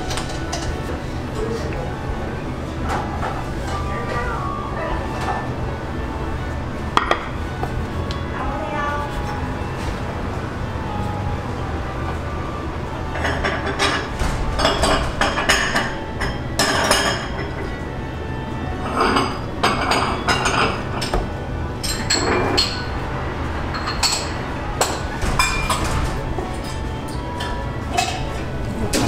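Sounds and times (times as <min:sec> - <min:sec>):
steady low hum: 0:00.0 - 0:29.0
dishes and glassware clinking: 0:13.1 - 0:17.8, 0:18.8 - 0:23.0, 0:23.7 - 0:29.0.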